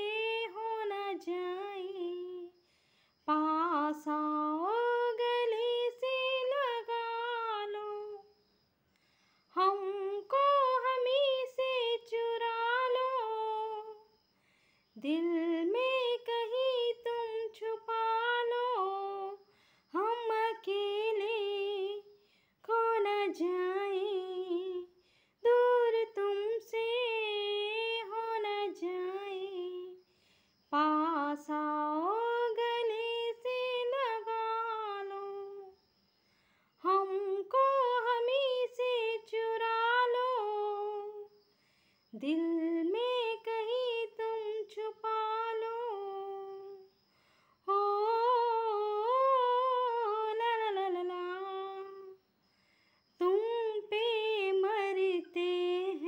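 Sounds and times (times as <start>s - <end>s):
woman singing unaccompanied: 0.0s - 8.4s, 9.5s - 14.3s, 14.9s - 35.9s, 36.8s - 41.5s, 42.1s - 52.4s, 53.2s - 56.0s.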